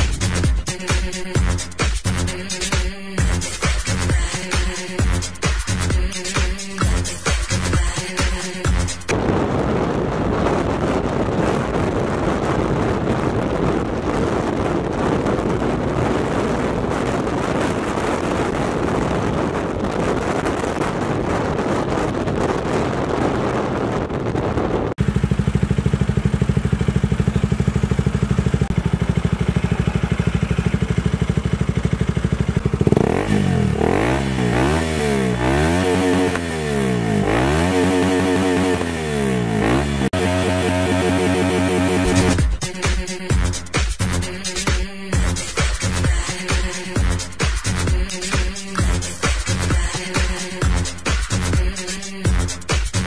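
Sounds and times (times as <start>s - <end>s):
wind noise: 8.8s - 28.8s
motorcycle engine: 24.8s - 42.6s
engine revving in blips: 32.6s - 42.4s.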